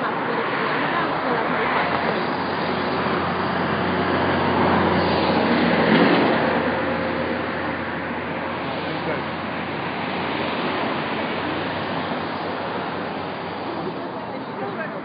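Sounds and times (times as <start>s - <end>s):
cars passing: 0.0s - 15.0s.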